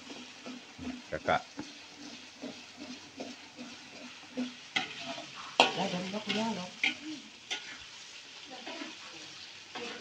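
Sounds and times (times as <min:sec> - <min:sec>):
spatula clanking on wok: 0:00.0 - 0:07.8
metal spatula scraping: 0:00.0 - 0:08.0, 0:09.7 - 0:10.0
food sizzling in hot oil: 0:00.0 - 0:10.0.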